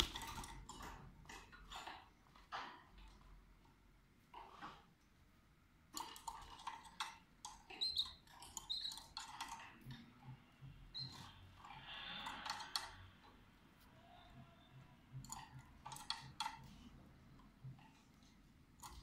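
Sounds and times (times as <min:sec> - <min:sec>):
birds clicking and tapping in cage: 0:00.0 - 0:03.3, 0:05.9 - 0:13.4, 0:15.1 - 0:19.0
canaries chirping: 0:07.6 - 0:09.5, 0:10.8 - 0:11.4.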